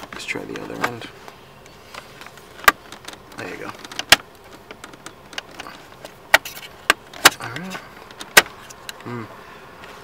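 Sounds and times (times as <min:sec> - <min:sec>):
plastic trim clicking and snapping: 0:02.6 - 0:09.0.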